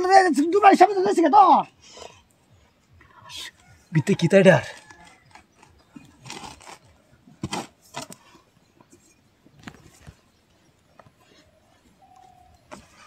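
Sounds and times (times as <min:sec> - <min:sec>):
hoe chopping into soil: 0:07.4 - 0:08.2.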